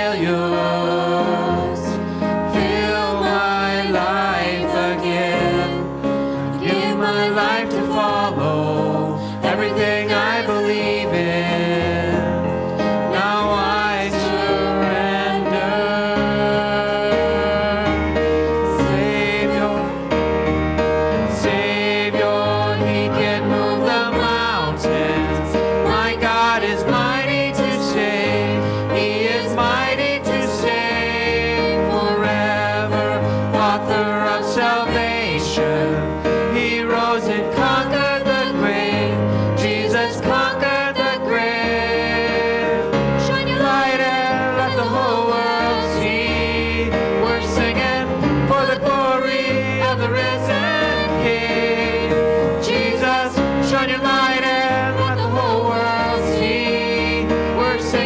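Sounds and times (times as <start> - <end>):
voices singing together: 0.0 - 20.2, 21.1 - 58.0
keyboard accompaniment: 0.0 - 58.0.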